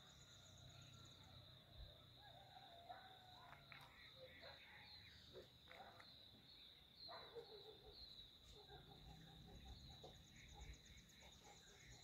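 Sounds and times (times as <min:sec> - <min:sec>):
bird calls: 0:03.4 - 0:12.0.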